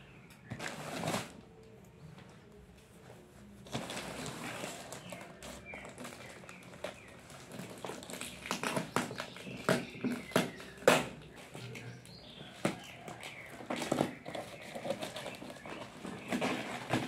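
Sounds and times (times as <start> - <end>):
plastic rustling: 0.5 - 1.8, 3.1 - 17.0
scissors snipping plastic: 4.9 - 11.9.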